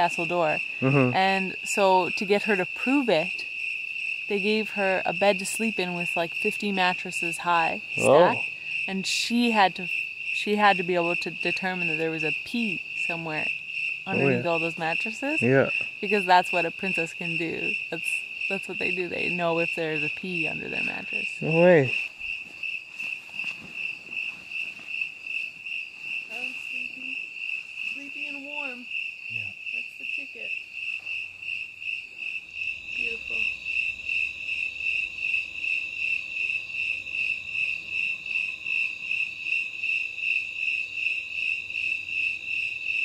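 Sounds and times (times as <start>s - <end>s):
crickets chirping: 0.0s - 43.0s
faint murmured voices: 0.8s - 1.2s, 8.0s - 8.4s, 15.4s - 15.8s, 21.4s - 22.0s.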